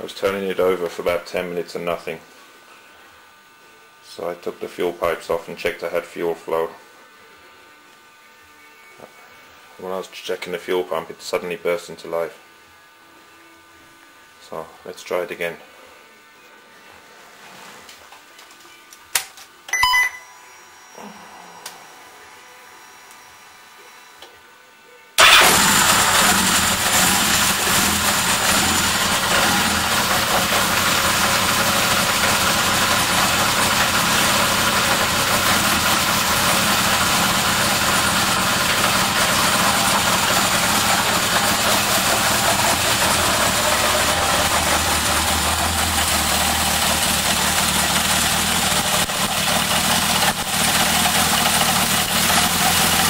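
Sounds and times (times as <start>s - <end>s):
motorcycle engine idling: 25.2s - 53.0s.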